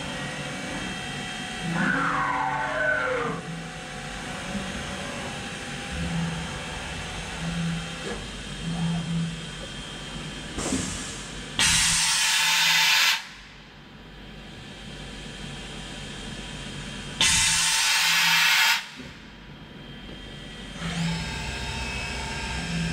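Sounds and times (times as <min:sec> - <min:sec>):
machine humming: 0:00.0 - 0:10.1, 0:19.5 - 0:22.9.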